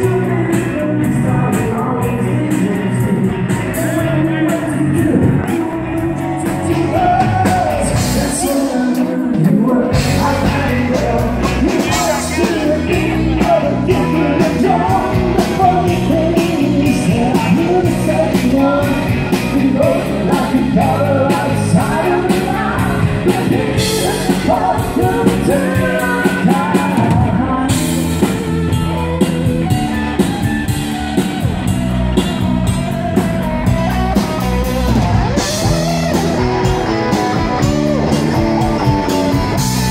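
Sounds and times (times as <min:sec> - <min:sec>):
man singing: 0:00.0 - 0:28.8
bass guitar: 0:00.0 - 0:39.9
drum kit with cymbals: 0:00.0 - 0:39.9
electric guitar: 0:00.0 - 0:39.9.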